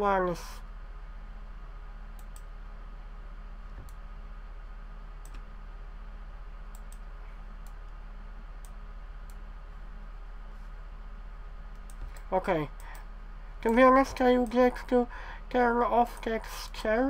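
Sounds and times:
low electrical hum: 0.0s - 17.0s
computer mouse clicks: 2.1s - 2.5s, 5.2s - 5.5s, 6.7s - 8.0s, 8.6s - 9.4s, 11.7s - 13.0s.

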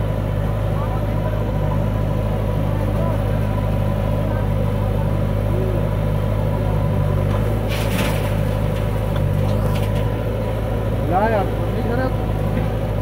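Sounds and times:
diesel engines idling: 0.0s - 13.0s
soil dropping with rushing clatter: 7.2s - 10.4s.

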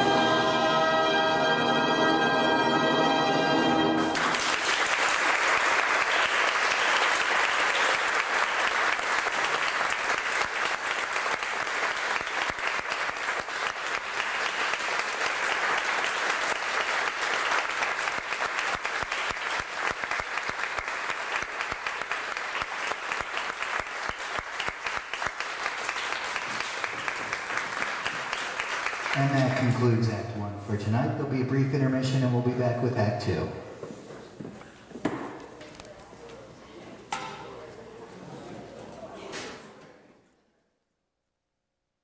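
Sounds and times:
audience applauding: 4.0s - 30.1s.

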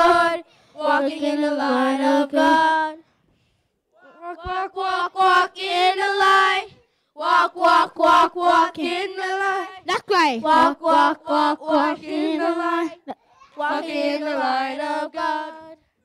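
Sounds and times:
children and women singing: 0.0s - 3.1s, 4.0s - 16.0s.

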